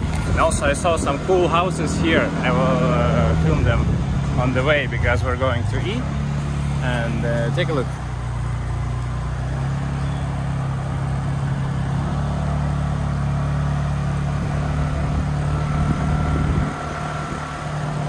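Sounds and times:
motor scooter engine running: 5.9 - 18.0
wind rush: 14.4 - 18.0.

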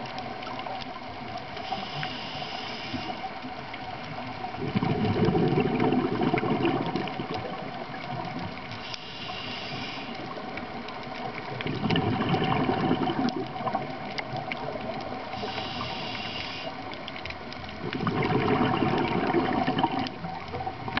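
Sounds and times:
exhaled bubbles gushing underwater: 0.0 - 21.0
regulator inhalation hiss: 1.6 - 3.4, 8.8 - 10.4, 15.3 - 17.0.

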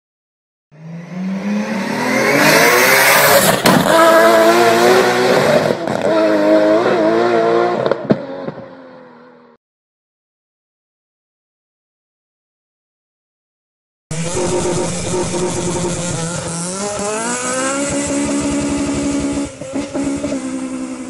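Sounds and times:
car engine revving: 0.8 - 8.2, 14.1 - 21.0.

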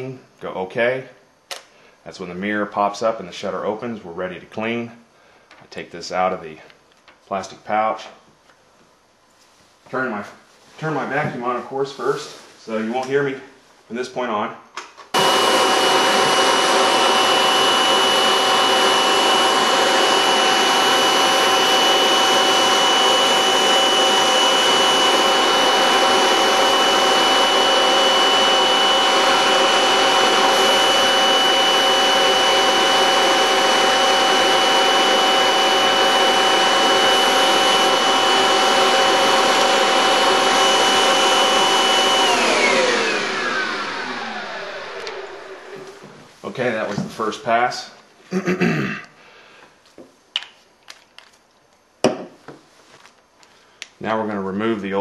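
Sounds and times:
vacuum cleaner running: 15.1 - 47.3.

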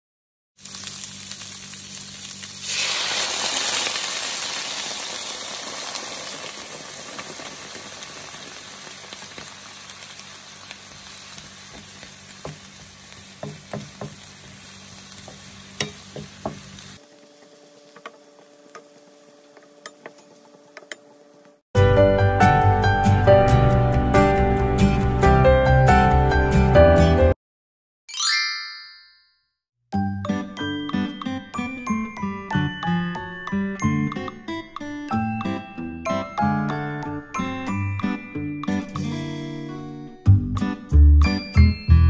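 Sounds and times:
meat and onion sizzling: 0.6 - 21.6.

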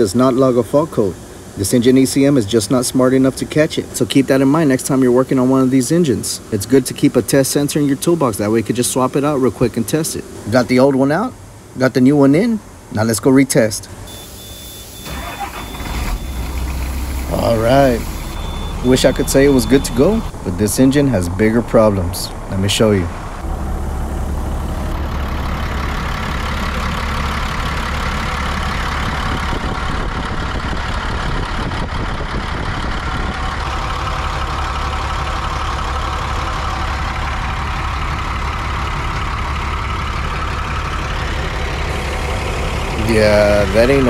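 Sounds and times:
diesel engine idling: 14.1 - 44.0.

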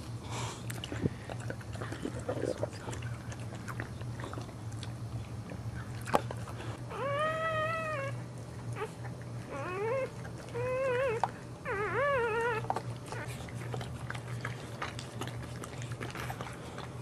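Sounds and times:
puppy crying: 6.8 - 13.8.

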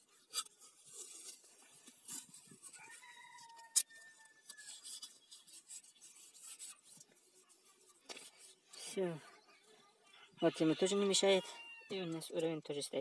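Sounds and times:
masking tape peeling and rubbing: 0.0 - 8.8.

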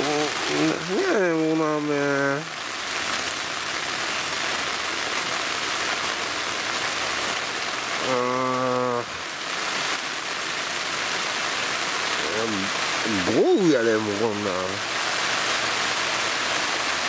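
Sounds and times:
heavy rain on tent fabric: 0.0 - 17.0
man humming: 8.0 - 9.1.

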